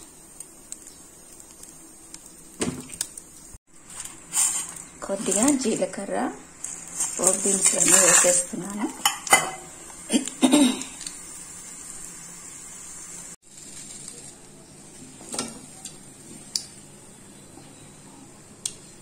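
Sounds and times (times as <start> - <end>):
spices sizzling in oil: 0.0 - 19.0
utensils knocking against pan: 9.0 - 9.7.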